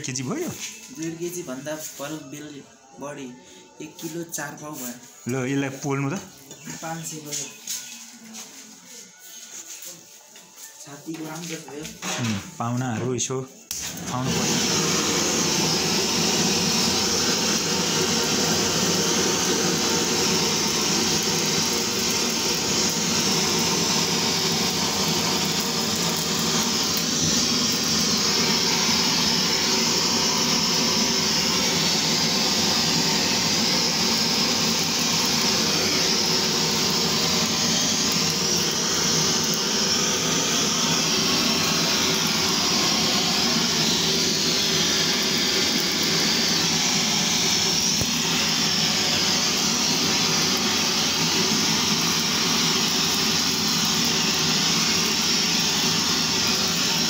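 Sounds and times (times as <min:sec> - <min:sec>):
gas blowtorch hissing: 0:11.2 - 0:12.6, 0:13.7 - 0:57.0.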